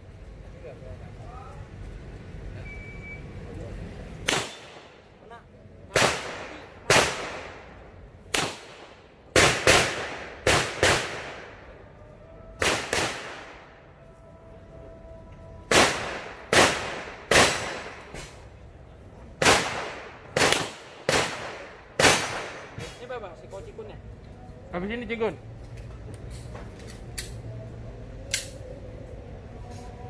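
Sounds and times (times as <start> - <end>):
pistol shots echoing: 4.3 - 5.0, 5.9 - 11.6, 12.6 - 13.7, 15.7 - 18.1, 19.4 - 22.9.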